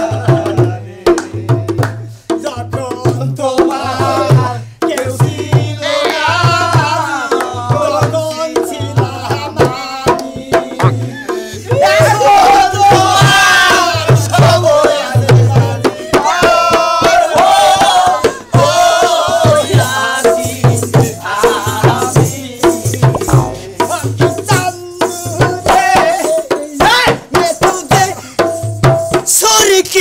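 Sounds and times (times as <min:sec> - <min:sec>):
dhol drum beating: 0:00.0 - 0:30.0
rattling percussion: 0:21.6 - 0:24.8
person singing: 0:22.8 - 0:24.4.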